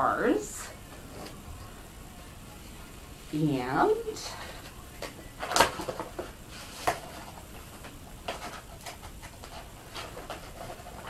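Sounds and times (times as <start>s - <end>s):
packaging clicks and rustles: 4.6s - 11.0s.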